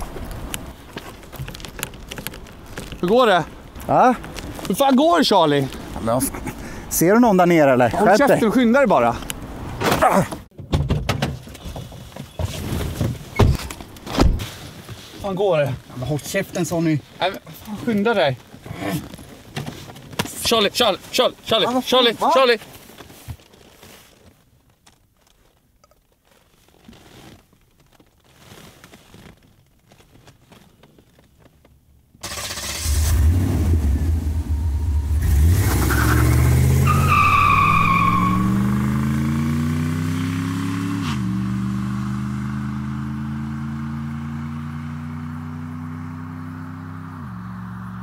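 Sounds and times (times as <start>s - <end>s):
car engine starting and revving: 32.2s - 48.0s.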